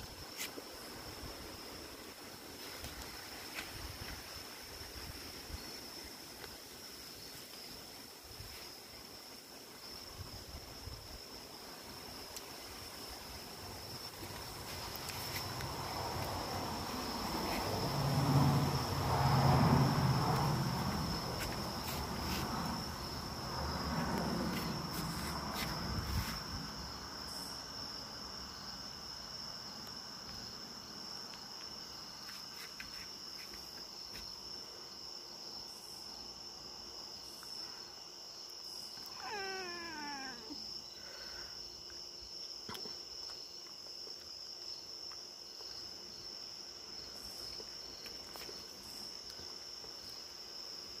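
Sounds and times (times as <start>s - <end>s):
insects chirring: 0.0s - 51.0s
cat meowing: 39.0s - 40.6s.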